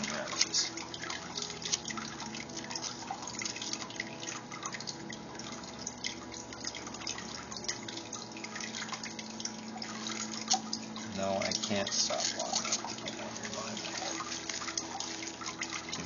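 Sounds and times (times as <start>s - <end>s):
bubble wrap crinkling: 12.0s - 16.0s.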